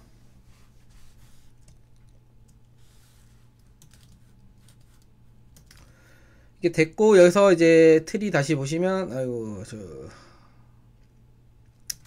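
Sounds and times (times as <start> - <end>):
low steady hum: 0.0 - 12.0
keyboard typing clicks: 5.6 - 5.9, 11.7 - 12.0.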